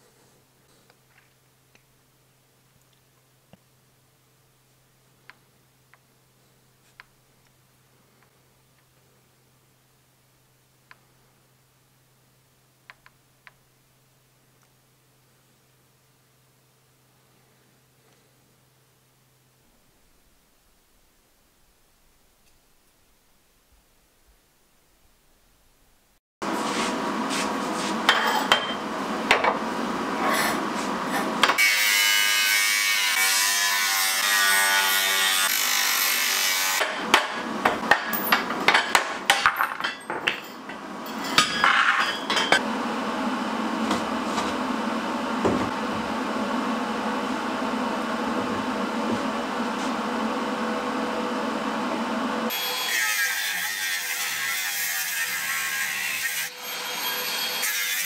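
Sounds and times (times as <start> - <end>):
angle grinder cutting steel tubing: 30.6 - 42.6, 52.5 - 58.0.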